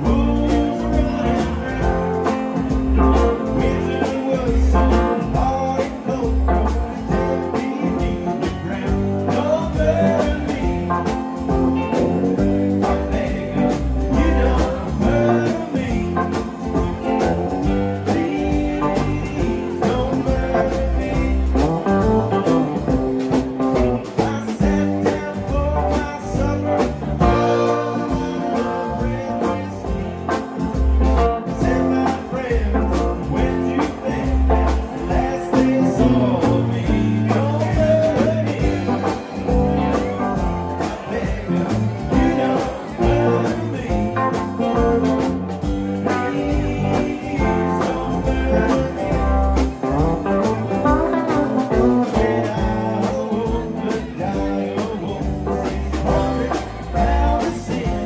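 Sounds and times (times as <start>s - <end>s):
drum beat: 0.0s - 58.0s
live band playing country blues: 0.0s - 58.0s.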